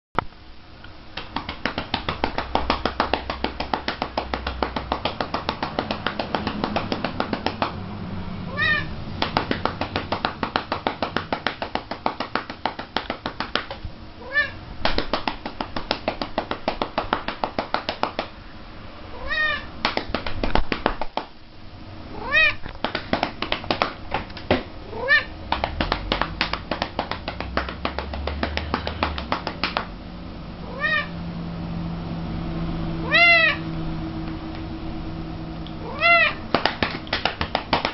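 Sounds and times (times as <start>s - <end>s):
cat meowing: 8.5s - 9.0s, 14.2s - 14.6s, 19.1s - 19.7s, 22.1s - 22.7s, 24.8s - 25.4s, 30.6s - 31.2s, 33.0s - 33.7s, 35.8s - 36.5s
hand patting a cat: 25.5s - 29.9s.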